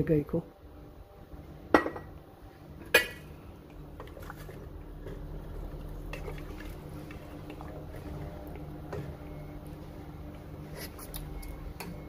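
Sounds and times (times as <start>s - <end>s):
broth heating with faint crackles: 0.0s - 12.0s
kitchenware clanking: 1.7s - 2.1s.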